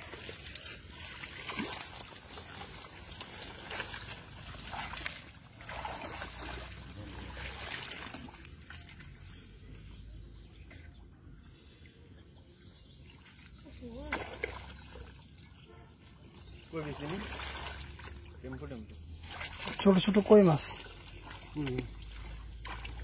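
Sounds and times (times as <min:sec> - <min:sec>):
hands splashing in muddy water: 0:00.0 - 0:09.4, 0:16.6 - 0:18.3, 0:18.9 - 0:23.0.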